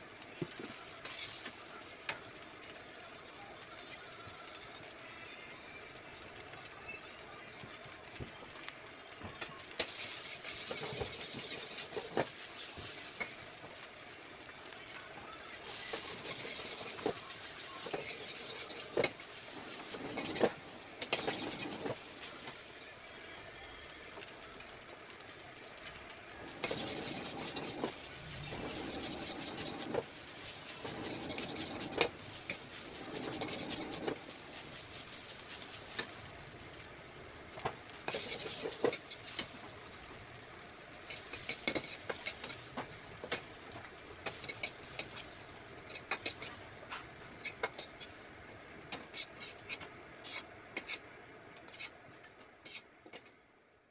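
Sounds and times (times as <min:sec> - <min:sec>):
rice sizzling in a wok: 0:00.0 - 0:53.9
steel ladle scraping wok: 0:15.7 - 0:22.5, 0:26.4 - 0:36.1, 0:38.0 - 0:39.5, 0:41.1 - 0:42.7, 0:44.2 - 0:46.6, 0:47.4 - 0:48.2, 0:48.9 - 0:51.0, 0:51.7 - 0:53.3.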